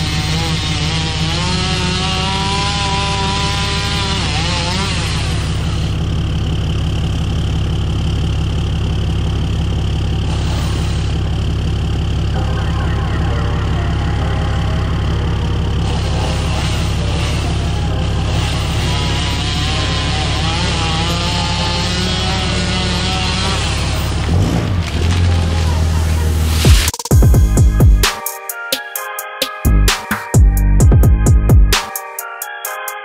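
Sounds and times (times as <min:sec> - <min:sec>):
engine droning: 0:00.0 - 0:28.1.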